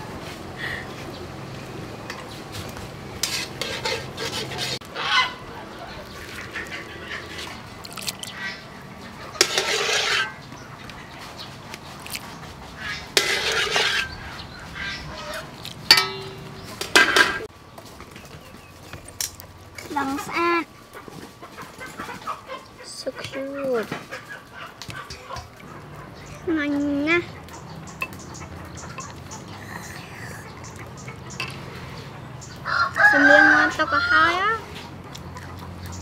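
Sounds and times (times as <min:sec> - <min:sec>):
fowl calling: 0:04.8 - 0:07.6.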